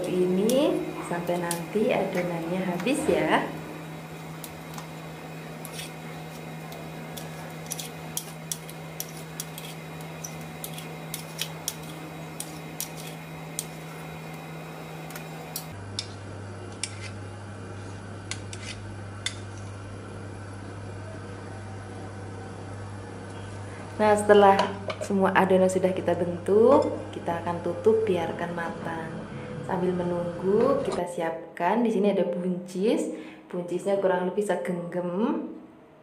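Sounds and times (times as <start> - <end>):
steady low hum: 0.0 - 36.0
steel spoons clinking: 7.1 - 13.7.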